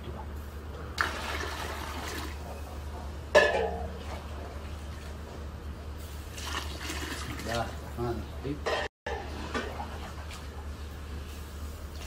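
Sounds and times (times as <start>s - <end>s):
metal clank: 3.3s - 3.9s
water pouring into a pot: 6.3s - 7.8s.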